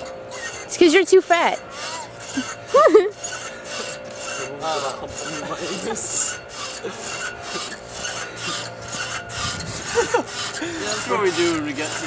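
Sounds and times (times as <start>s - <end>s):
rhythmic rasping scrapes: 0.0s - 12.0s.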